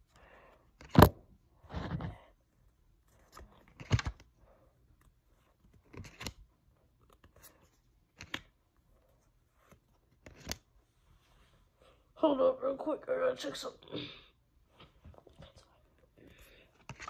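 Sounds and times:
cards shuffling: 0.7s - 2.2s, 3.0s - 10.8s, 14.8s - 17.0s
trading cards rustling and snapping: 0.7s - 2.2s, 3.0s - 10.7s, 15.1s - 17.0s.

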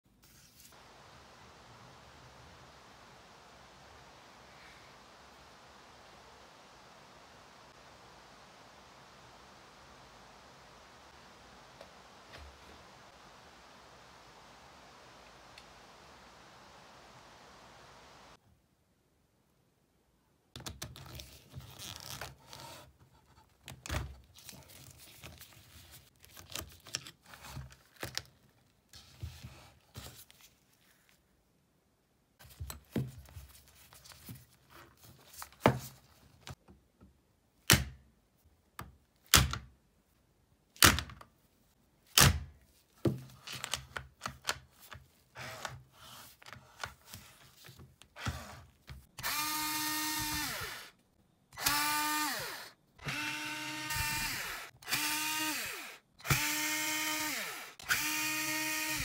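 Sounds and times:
rustling and scraping: 0.1s - 0.8s
drill motor whine: 49.2s - 50.9s, 51.6s - 59.0s.

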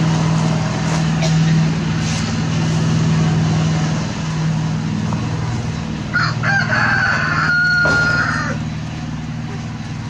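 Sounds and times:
engine running: 0.0s - 10.0s
rooster crowing: 6.1s - 8.7s.

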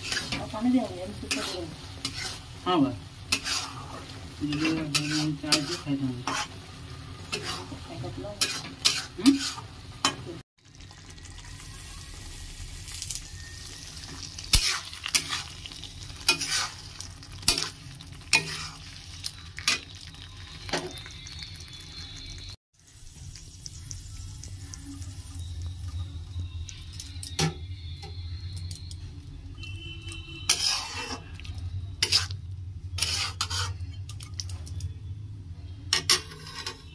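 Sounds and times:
metal spatula scraping a pan: 0.0s - 10.4s, 13.9s - 20.0s, 30.0s - 34.2s, 35.9s - 36.9s
curry sizzling: 0.0s - 34.9s, 35.8s - 36.9s.

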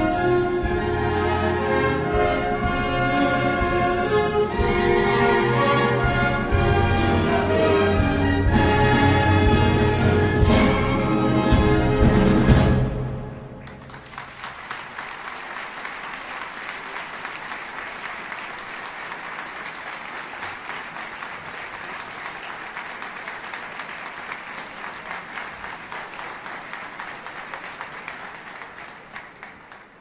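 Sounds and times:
audience applauding: 13.6s - 30.0s.

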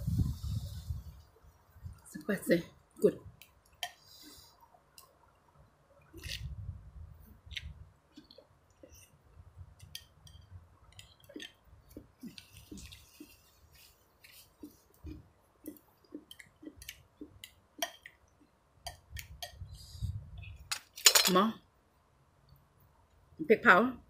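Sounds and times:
person chewing noodles: 7.4s - 18.2s.

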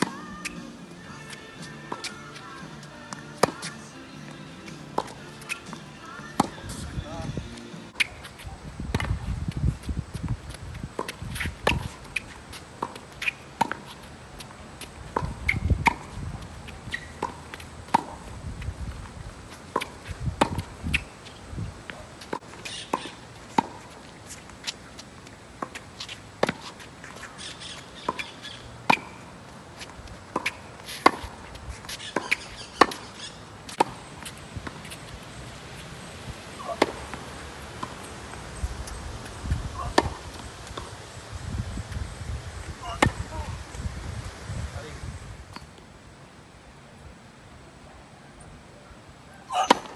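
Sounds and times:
tennis racket hitting ball: 0.0s - 3.9s, 4.6s - 6.8s, 11.0s - 18.4s, 19.6s - 21.1s, 22.2s - 24.0s, 25.6s - 29.2s, 29.8s - 35.0s, 36.6s - 38.0s, 39.8s - 40.9s, 49.6s - 49.9s.

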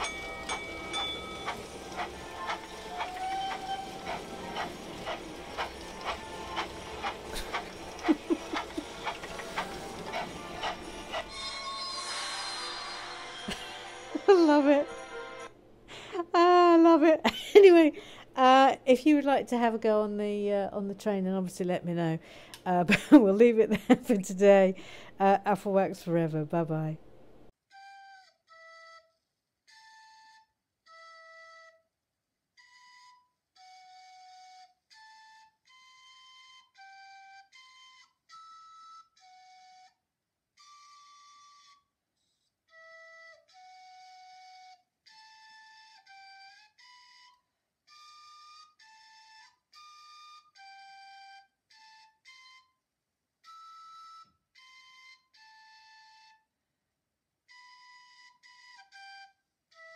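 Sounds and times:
slow flute-like melody: 0.0s - 15.5s, 27.6s - 56.7s, 57.4s - 59.9s.

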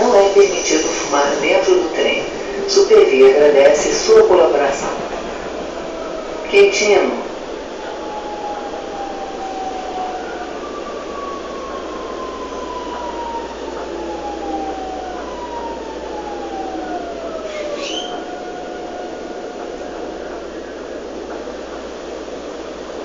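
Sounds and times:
train motor whine: 0.0s - 21.9s
train rumbling on rails: 0.0s - 23.0s
brief high squeal: 17.4s - 18.2s.

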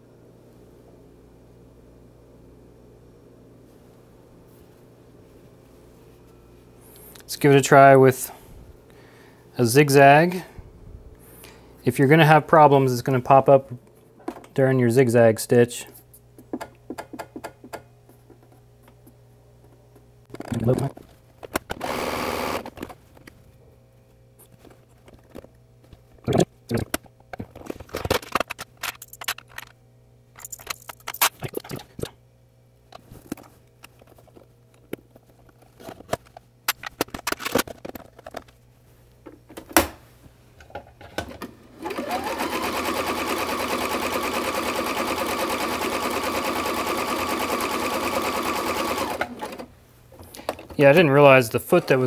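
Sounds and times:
sewing machine running: 21.8s - 22.7s, 41.7s - 49.7s.

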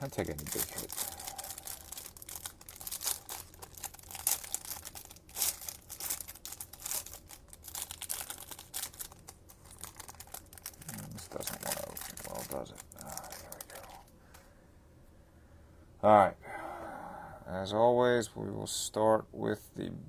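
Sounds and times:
plastic wrapping crinkling and tearing: 0.0s - 14.1s.

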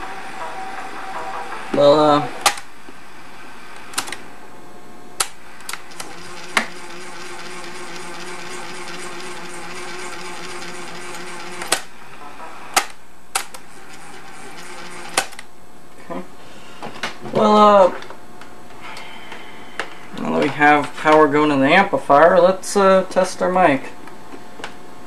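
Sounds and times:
tape transport motor hum: 5.2s - 11.9s, 13.3s - 15.5s.

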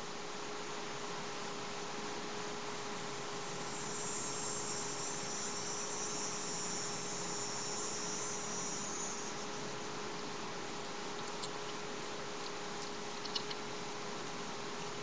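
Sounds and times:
faint steady hum: 0.0s - 15.0s
microphone hiss: 0.0s - 15.0s
insect trilling: 3.4s - 9.7s, 12.8s - 13.7s.

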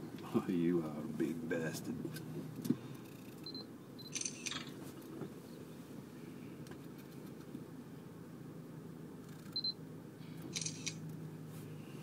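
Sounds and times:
vehicle idling rumble: 0.0s - 12.0s
camera handling noise: 4.1s - 4.8s, 10.5s - 11.0s.

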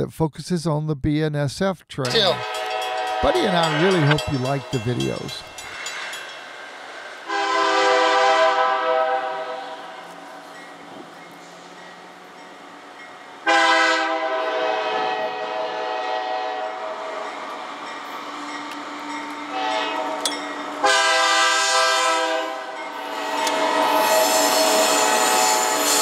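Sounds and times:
locomotive air horn blasts: 2.2s - 4.2s, 7.2s - 10.0s, 13.4s - 17.2s, 19.5s - 20.2s, 20.8s - 26.0s.

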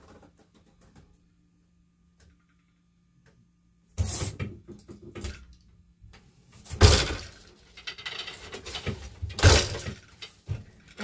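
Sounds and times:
loom beater heavy thud: 6.7s - 7.4s.

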